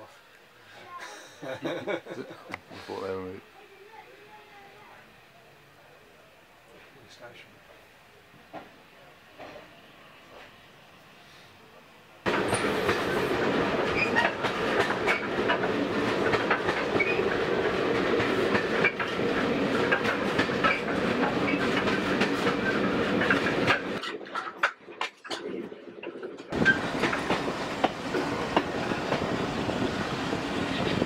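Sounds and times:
train coach rumble: 8.4s - 31.0s
wheels clicking over rail joints: 12.3s - 29.3s.

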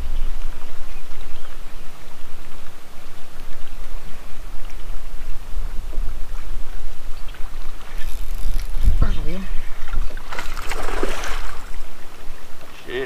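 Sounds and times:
water rushing around boat: 1.9s - 13.0s
light ticks: 2.3s - 5.3s.

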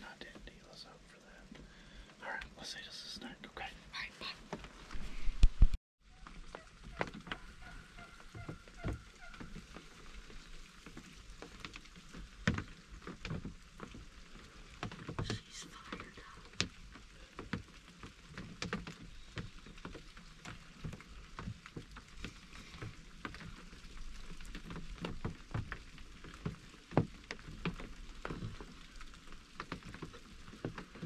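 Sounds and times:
faint steady hiss: 0.0s - 31.0s
raindrops tapping on wood: 0.0s - 31.0s.

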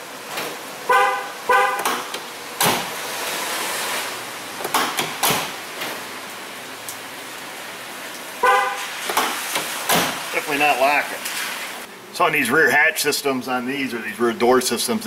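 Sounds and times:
car horn chirps: 0.9s - 2.0s, 8.4s - 9.0s.

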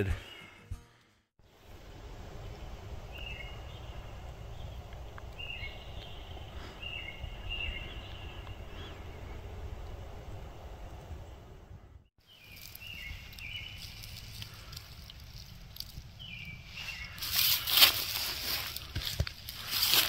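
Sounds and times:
wind rumble on microphone: 1.6s - 12.1s.

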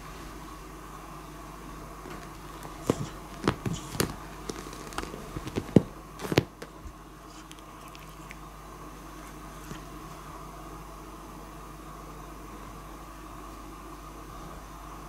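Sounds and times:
background hum: 0.0s - 15.0s
cat pawing taps and knocks: 2.1s - 6.8s.

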